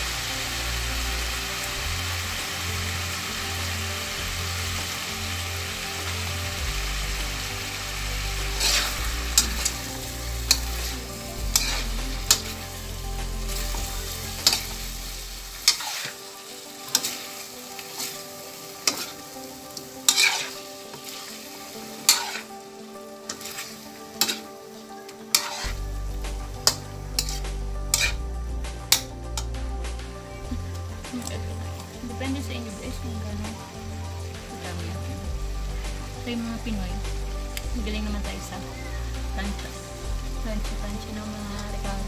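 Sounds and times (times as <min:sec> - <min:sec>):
food sizzling in a wok: 0:00.0 - 0:42.0
metal spatula scraping pan: 0:08.4 - 0:16.2, 0:16.8 - 0:22.6, 0:23.3 - 0:24.5, 0:25.3 - 0:25.8, 0:26.6 - 0:28.2.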